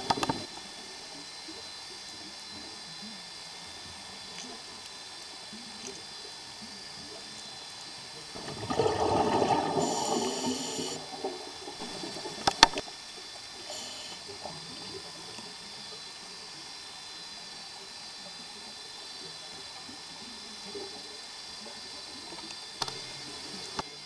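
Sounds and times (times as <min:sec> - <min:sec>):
sharp clicks: 0:00.0 - 0:00.5
diver exhaling bubbles: 0:08.4 - 0:12.8.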